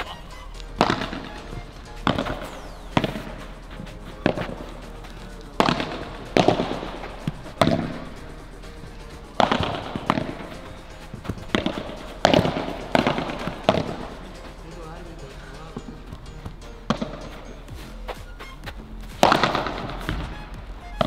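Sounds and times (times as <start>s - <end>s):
padel ball struck by rackets: 0.0s - 17.6s, 19.1s - 20.3s
ball bouncing off court and glass: 0.7s - 14.9s, 15.7s - 17.6s, 19.1s - 20.3s.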